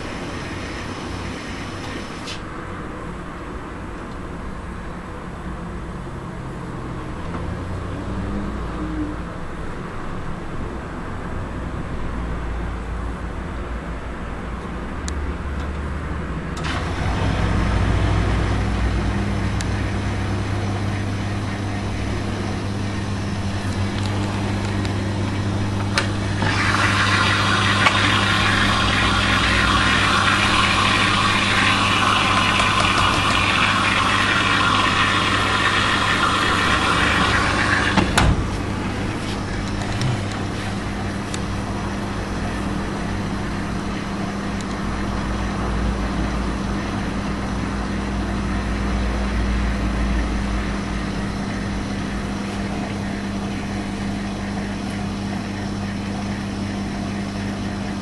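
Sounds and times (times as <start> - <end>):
water rushing into machine: 0.0 - 2.9, 16.5 - 47.8
washing machine motor humming: 0.0 - 4.4, 16.4 - 58.0
washing machine click: 36.3 - 38.7.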